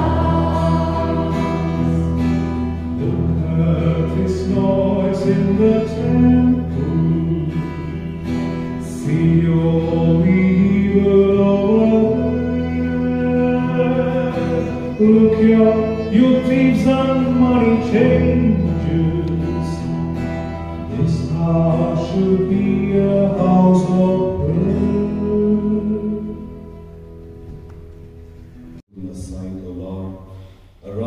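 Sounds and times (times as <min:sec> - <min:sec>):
choir singing a hymn: 0:00.0 - 0:20.1
instrumental accompaniment: 0:00.0 - 0:28.8.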